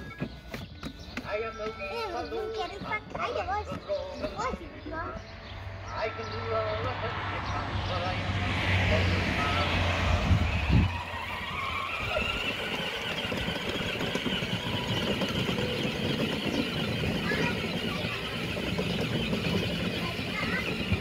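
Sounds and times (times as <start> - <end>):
toy truck electric motor whining: 9.4 - 21.0.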